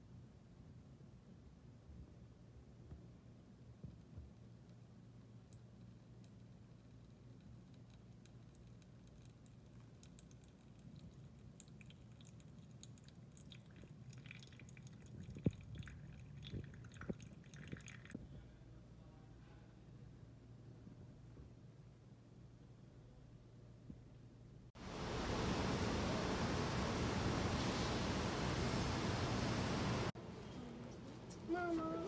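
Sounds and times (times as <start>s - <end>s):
low steady hum: 0.0s - 32.0s
water poured onto coffee: 7.1s - 18.2s.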